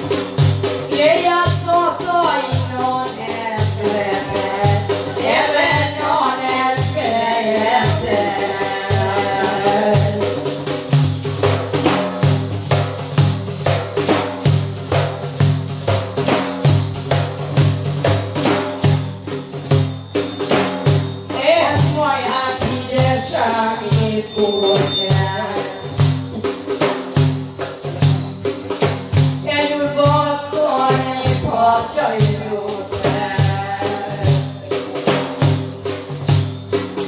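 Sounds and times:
frame drum with jingles: 0:00.0 - 0:37.0
woman singing: 0:00.9 - 0:10.5, 0:21.3 - 0:26.2, 0:29.4 - 0:35.4.

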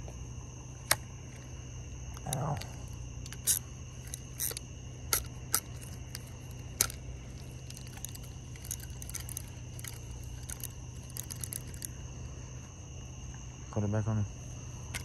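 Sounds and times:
crickets chirping: 0:00.0 - 0:15.0
low steady hum: 0:00.0 - 0:15.0
gear handling clicks and knocks: 0:02.1 - 0:11.9.

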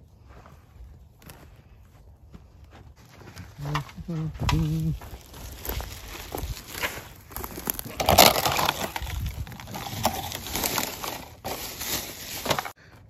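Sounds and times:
plastic bag rustling: 0:05.0 - 0:12.8.

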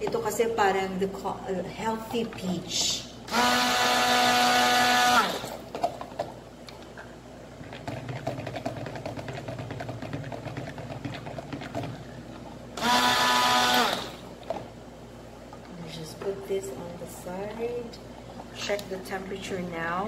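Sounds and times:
stick blender whining: 0:03.3 - 0:05.7, 0:12.8 - 0:14.3.

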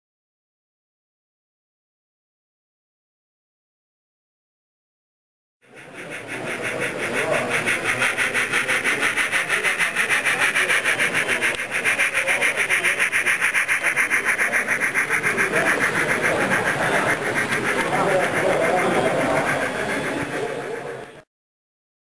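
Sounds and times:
model train whirring on rails: 0:05.6 - 0:21.3.

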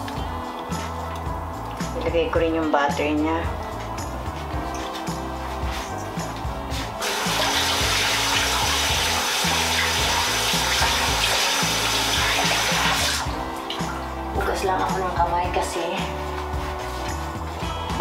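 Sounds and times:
hands rinsing: 0:06.6 - 0:15.0
tap running into sink: 0:07.0 - 0:13.9.

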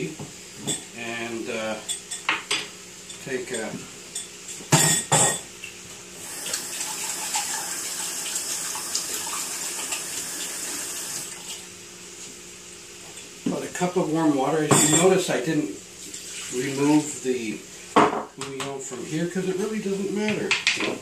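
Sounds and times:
tap water running into sink: 0:06.2 - 0:11.6.

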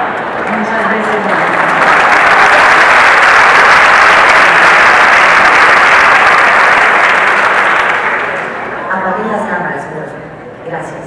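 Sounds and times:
large audience applauding: 0:00.0 - 0:08.8.

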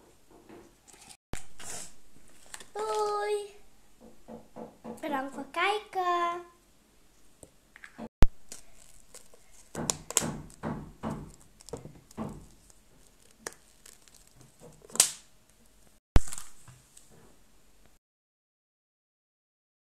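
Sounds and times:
plastic and wrapper rustling: 0:00.8 - 0:03.2, 0:08.3 - 0:10.6, 0:11.2 - 0:17.2.

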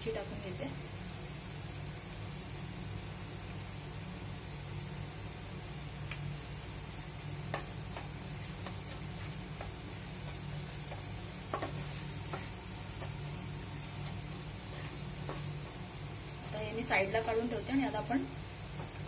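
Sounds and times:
steady low hum: 0:00.0 - 0:19.0
spatula tapping a pan: 0:07.4 - 0:09.0, 0:10.8 - 0:13.2.

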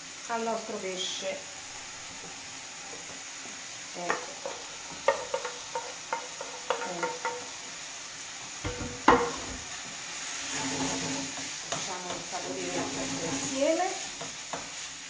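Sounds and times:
pan sizzling: 0:00.0 - 0:15.0
utensil clanking on metal pans: 0:04.0 - 0:07.6, 0:08.6 - 0:09.7, 0:10.5 - 0:14.8
food scraped from frying pan: 0:10.2 - 0:11.6.

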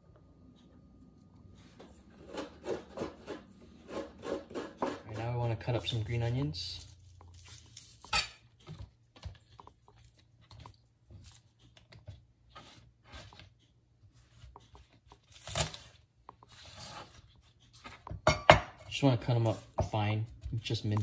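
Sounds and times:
knife cutting on plastic board: 0:07.4 - 0:13.5.

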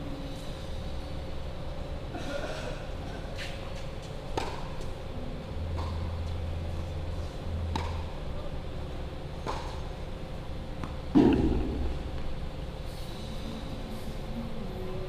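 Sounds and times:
low steady rumble: 0:00.0 - 0:03.3, 0:04.0 - 0:15.0
tennis ball struck with racket: 0:04.4 - 0:04.7, 0:07.7 - 0:08.1, 0:09.4 - 0:09.8.

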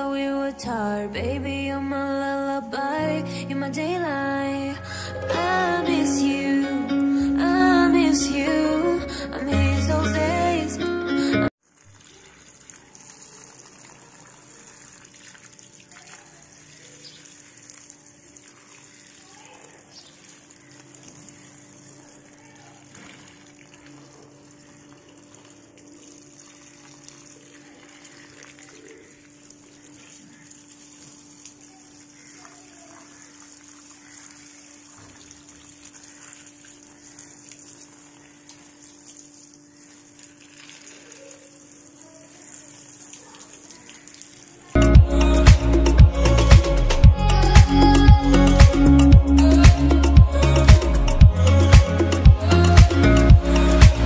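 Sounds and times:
water from hose splashing: 0:11.6 - 0:54.0.

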